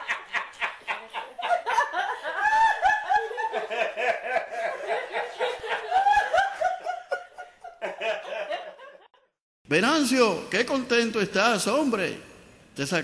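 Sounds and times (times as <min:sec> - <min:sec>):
group of people laughing: 0:00.0 - 0:09.4.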